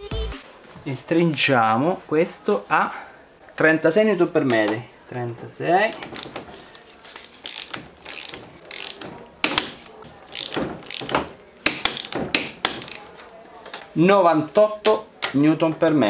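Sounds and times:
ratchet wrench clicking: 0:05.9 - 0:06.4, 0:07.4 - 0:13.0.

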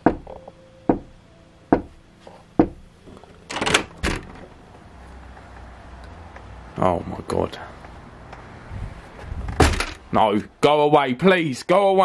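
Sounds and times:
knocks on a door: 0:00.0 - 0:01.1, 0:01.7 - 0:01.9, 0:02.6 - 0:02.8
low rumble of outdoor air: 0:00.0 - 0:10.7
door unlatched and opened: 0:03.5 - 0:04.5.

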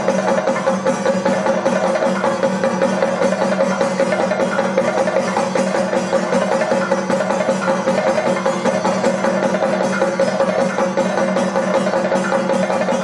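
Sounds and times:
drums played with sticks: 0:00.0 - 0:13.0.

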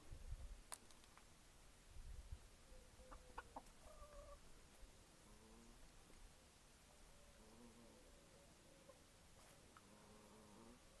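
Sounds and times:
hens clucking: 0:03.0 - 0:04.5.

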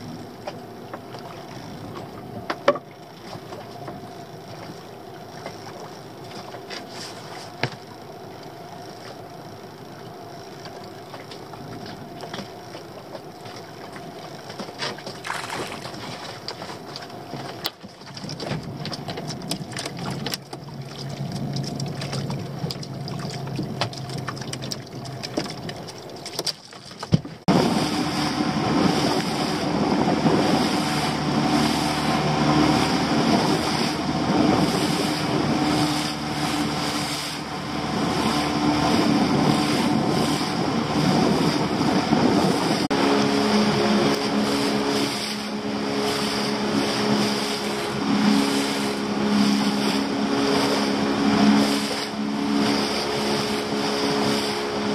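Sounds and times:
outboard motor: 0:00.0 - 0:54.9
water lapping against hull: 0:00.0 - 0:54.9
rushing wash: 0:27.4 - 0:54.9.

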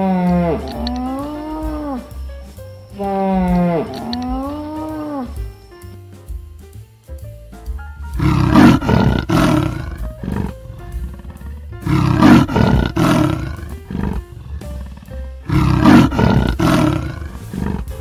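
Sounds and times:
leopard rasping call: 0:00.0 - 0:02.1, 0:03.0 - 0:05.3, 0:08.2 - 0:18.0.

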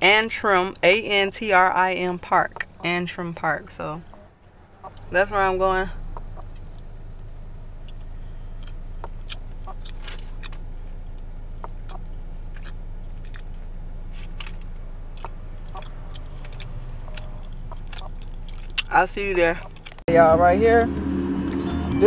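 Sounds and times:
low hum inside car: 0:00.0 - 0:22.0
person chewing cookie: 0:06.0 - 0:18.9, 0:19.6 - 0:20.0.

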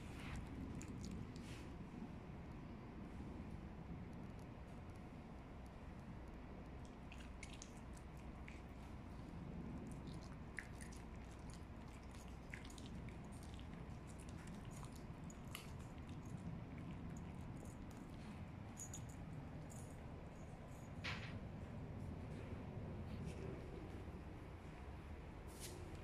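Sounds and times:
dog chewing a treat: 0:00.1 - 0:01.8, 0:06.0 - 0:21.0.

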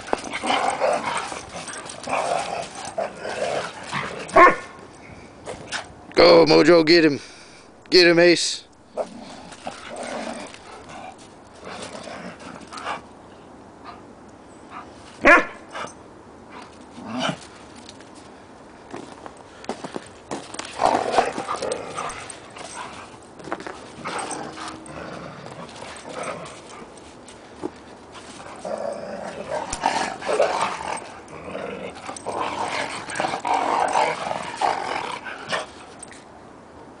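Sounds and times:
dogs growling in play: 0:00.0 - 0:04.4, 0:08.9 - 0:13.1, 0:16.6 - 0:17.6, 0:20.6 - 0:27.1, 0:28.1 - 0:36.0.

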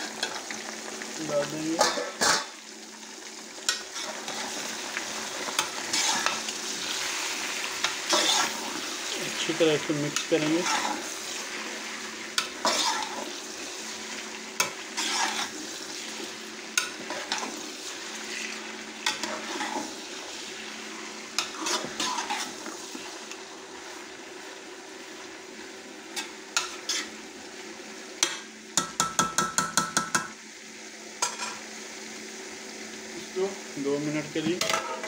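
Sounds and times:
meat sizzling in hot oil: 0:00.0 - 0:35.0
spoon scraping metal pot: 0:05.6 - 0:06.4, 0:12.4 - 0:13.2, 0:15.0 - 0:15.6, 0:21.4 - 0:22.6.

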